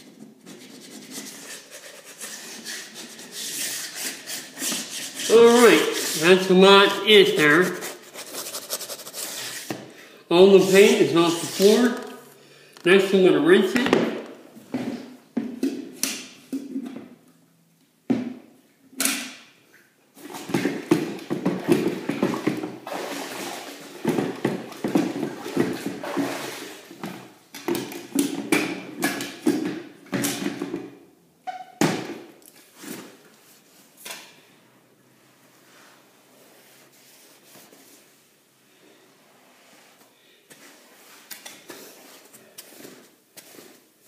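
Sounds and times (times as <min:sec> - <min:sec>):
water sloshing in a bucket: 0:20.2 - 0:28.5.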